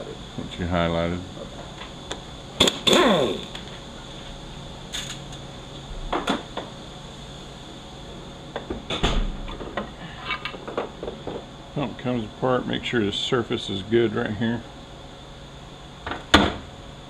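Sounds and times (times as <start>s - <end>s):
power wrench winding down: 2.6s - 3.6s.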